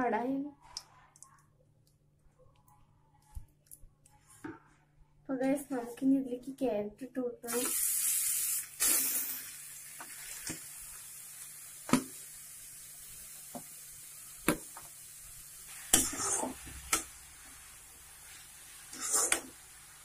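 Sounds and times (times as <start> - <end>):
carrot sizzling in hot fat: 7.5 - 20.0.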